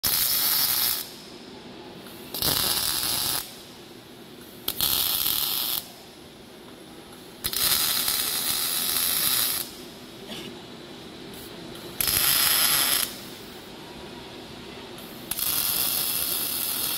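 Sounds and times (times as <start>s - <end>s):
welding arc hissing and crackling: 0.0s - 1.3s, 2.0s - 3.8s, 4.4s - 6.0s, 7.1s - 10.1s, 11.2s - 13.5s, 15.0s - 16.9s.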